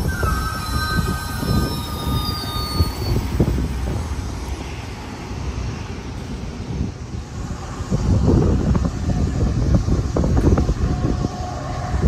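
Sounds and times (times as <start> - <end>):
high wheel squeal: 0.0 - 4.9
train wheels rumbling on rail: 0.0 - 12.0.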